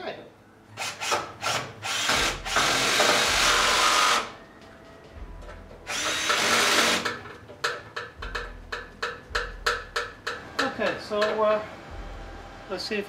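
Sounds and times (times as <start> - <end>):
motorised power tool running: 5.9 - 7.1.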